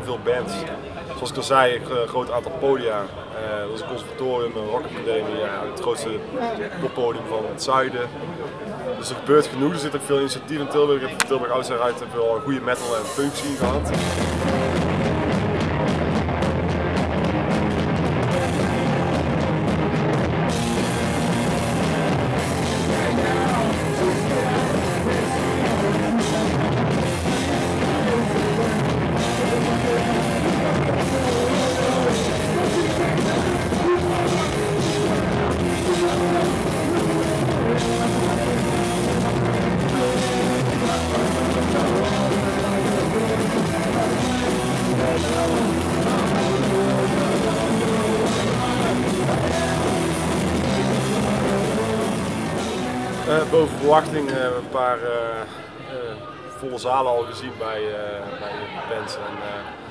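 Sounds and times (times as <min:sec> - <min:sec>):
rock music with drum kit: 0:13.6 - 0:53.8.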